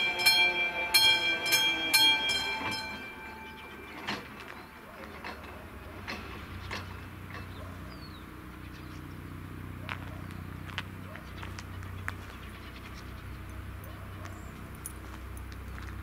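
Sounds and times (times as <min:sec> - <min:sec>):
crossing warning bell ringing: 0:00.0 - 0:08.4.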